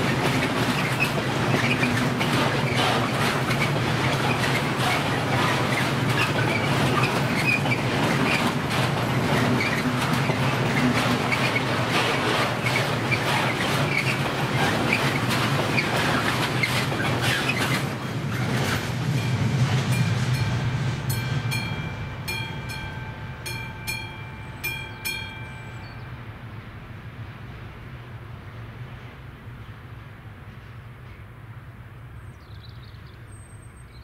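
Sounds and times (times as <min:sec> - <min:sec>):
train wheels clacking on rails: 0:00.0 - 0:26.7
level crossing warning bell: 0:19.1 - 0:26.5.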